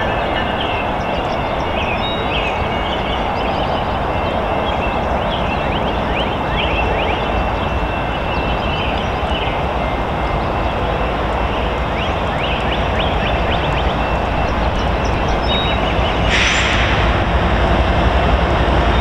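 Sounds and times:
diesel locomotive rumbling: 0.0s - 19.0s
burst of hiss: 16.2s - 17.3s.

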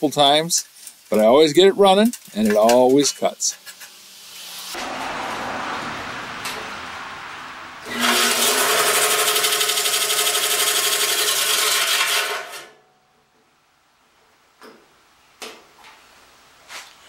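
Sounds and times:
bandsaw pulsing rubbing noise: 7.8s - 12.7s.

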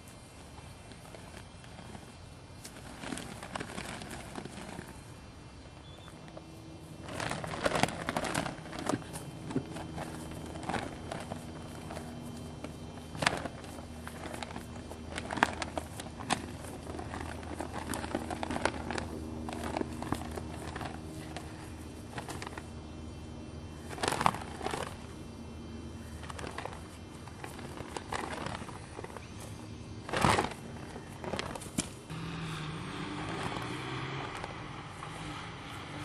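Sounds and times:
flag fabric flapping and whooshing: 0.0s - 36.0s.

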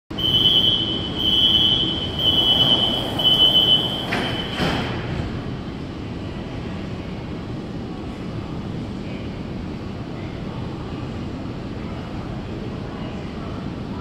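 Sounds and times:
train humming: 0.1s - 13.0s
door warning beeps: 0.2s - 4.8s
doors knocking shut: 4.0s - 5.0s.

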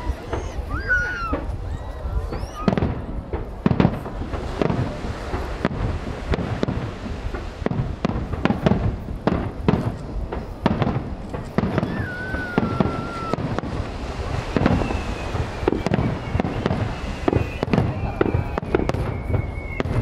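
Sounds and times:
wavering firework whistle: 0.0s - 3.0s, 11.6s - 20.0s
fireworks bangs: 0.0s - 20.0s.

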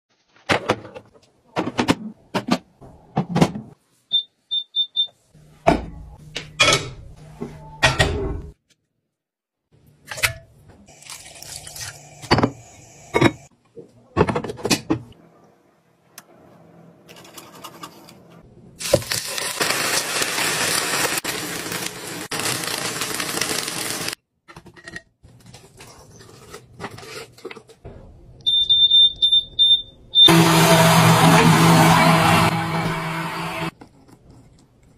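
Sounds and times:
meat sizzling on a griddle: 18.8s - 24.2s
blender motor starting: 30.3s - 33.7s.

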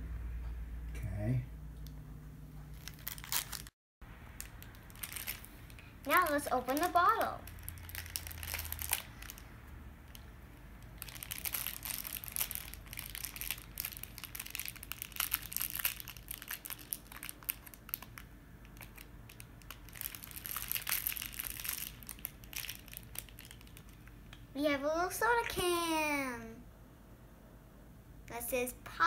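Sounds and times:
plastic wrapper crackling: 2.7s - 3.7s, 4.3s - 9.5s, 10.1s - 24.4s.

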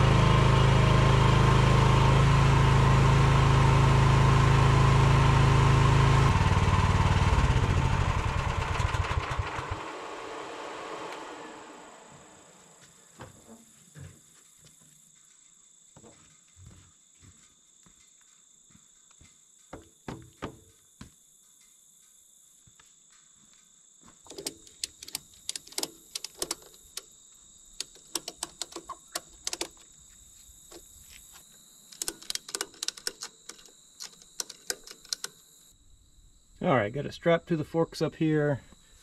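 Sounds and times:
insect chirring: 12.0s - 37.0s
knocks: 19.7s - 20.8s
ratchet strap clicking: 24.3s - 27.1s, 27.8s - 29.8s, 31.9s - 35.4s.

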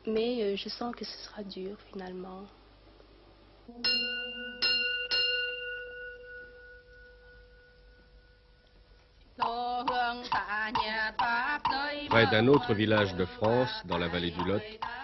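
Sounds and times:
prayer bell ringing: 3.8s - 7.8s.

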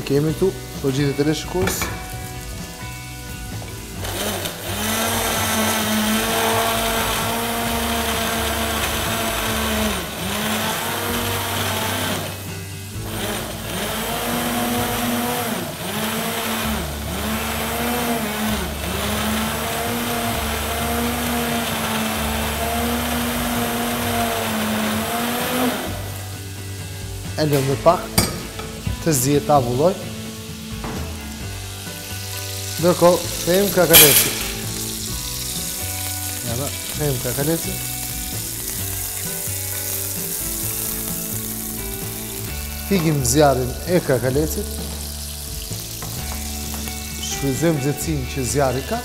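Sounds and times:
stick blender motor running: 4.0s - 26.2s, 32.2s - 43.6s.

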